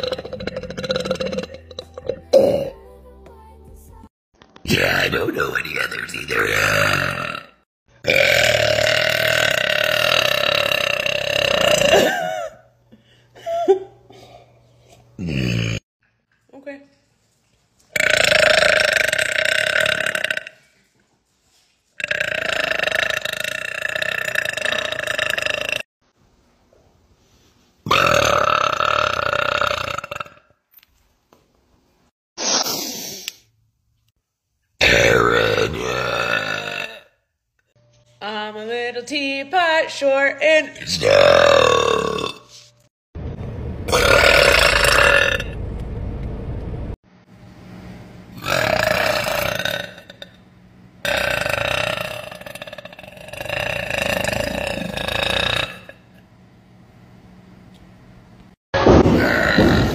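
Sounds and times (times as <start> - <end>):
woman burping: 0.0 - 2.8, 6.7 - 12.6, 22.0 - 25.8, 34.8 - 37.2, 40.8 - 42.5.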